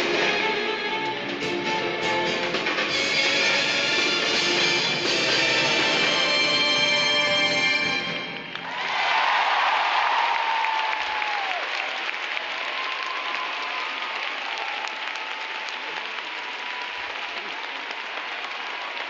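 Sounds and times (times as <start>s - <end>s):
audience applauding: 8.5s - 19.0s.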